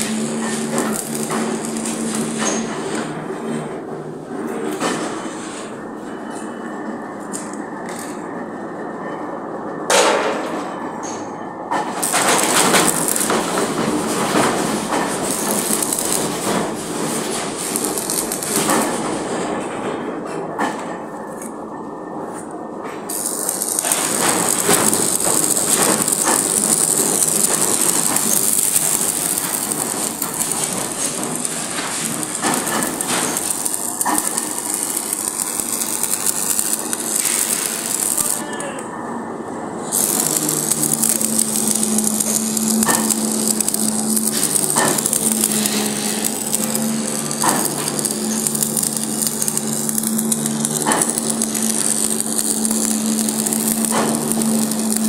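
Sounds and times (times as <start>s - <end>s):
arc welding crackling and hissing: 0.0s - 3.3s, 11.7s - 19.6s, 23.1s - 38.8s, 39.8s - 55.0s.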